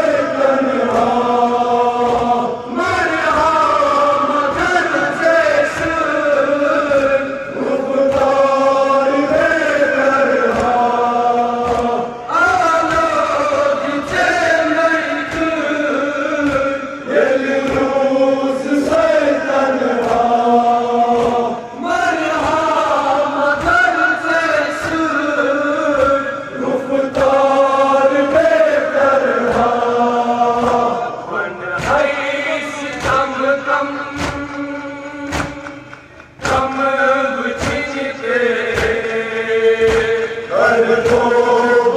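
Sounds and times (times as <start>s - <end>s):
men chanting a lament: 0.0s - 41.9s
hands slapping chests: 11.6s - 12.1s, 34.1s - 36.9s.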